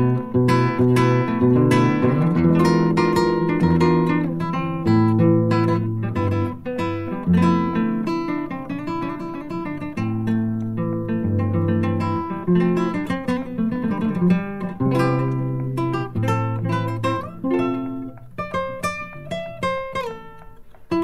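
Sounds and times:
acoustic guitar plucking: 0:00.0 - 0:21.0.

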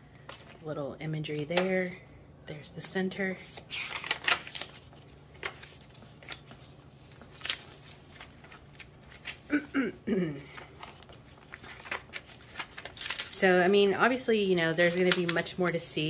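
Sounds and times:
paper pages rustling: 0:00.2 - 0:00.6, 0:02.8 - 0:09.5, 0:10.5 - 0:16.0.

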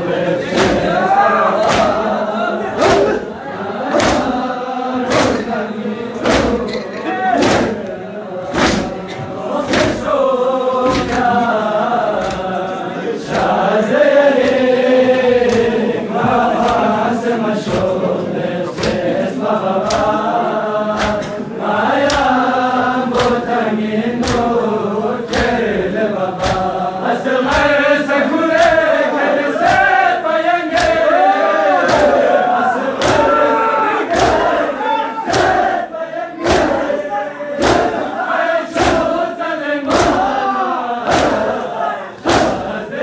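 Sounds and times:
crowd of men chanting: 0:00.0 - 0:43.0
chest-beating slaps: 0:00.4 - 0:01.0, 0:01.6 - 0:02.1, 0:02.8 - 0:03.3, 0:03.9 - 0:04.4, 0:05.0 - 0:05.6, 0:06.2 - 0:10.1, 0:10.8 - 0:11.4, 0:12.1 - 0:12.6, 0:14.4 - 0:14.7, 0:15.4 - 0:15.8, 0:16.5 - 0:17.0, 0:17.6 - 0:18.0, 0:18.7 - 0:19.2, 0:19.8 - 0:20.2, 0:20.9 - 0:22.4, 0:23.1 - 0:23.5, 0:24.2 - 0:24.6, 0:25.2 - 0:25.7, 0:26.4 - 0:26.8, 0:27.4 - 0:27.8, 0:29.6 - 0:30.0, 0:30.7 - 0:31.1, 0:31.8 - 0:32.2, 0:33.0 - 0:33.4, 0:34.1 - 0:34.6, 0:35.3 - 0:35.7, 0:36.4 - 0:36.9, 0:37.6 - 0:38.1, 0:38.7 - 0:39.2, 0:39.8 - 0:40.4, 0:41.0 - 0:41.6, 0:42.2 - 0:42.8.

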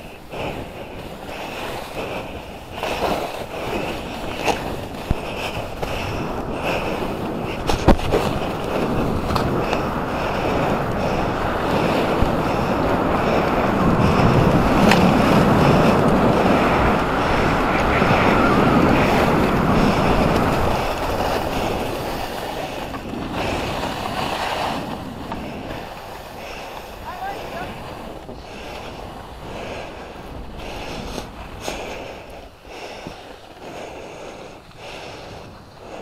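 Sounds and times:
wind on microphone: 0:00.0 - 0:36.0
skis hissing on snow: 0:14.9 - 0:36.0.

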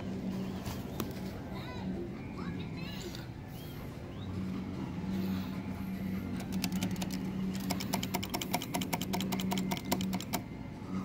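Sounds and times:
claw machine motor humming: 0:02.9 - 0:11.0
rapid even clicks: 0:06.3 - 0:10.5.

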